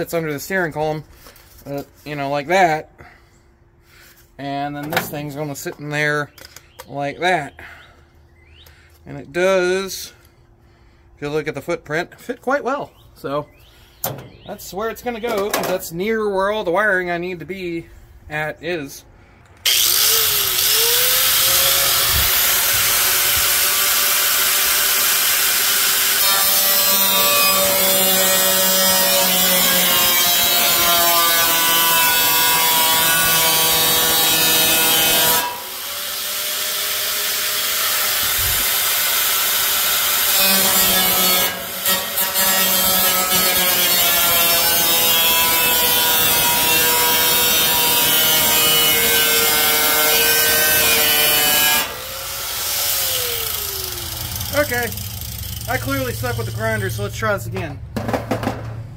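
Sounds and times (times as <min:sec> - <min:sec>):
angle grinder whining: 0:19.6 - 0:57.1.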